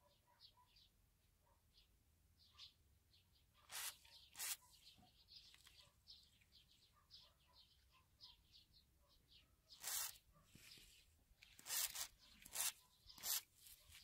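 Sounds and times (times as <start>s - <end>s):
faint bird chirps: 0.0s - 14.0s.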